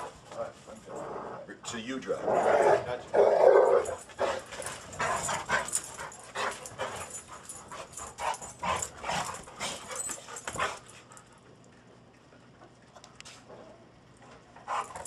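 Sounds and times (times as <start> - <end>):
dogs yipping and whining: 3.2 - 10.8.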